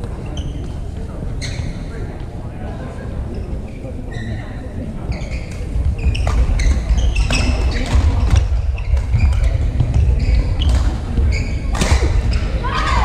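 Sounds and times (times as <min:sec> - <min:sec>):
shoes squeaking on court: 0:00.0 - 0:02.0, 0:05.1 - 0:12.6.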